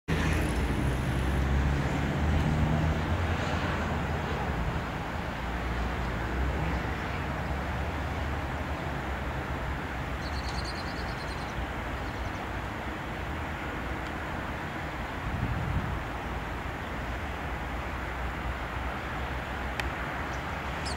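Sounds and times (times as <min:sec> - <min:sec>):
aircraft engines rumbling: 0:00.1 - 0:20.9
high bird chirps: 0:10.2 - 0:12.4.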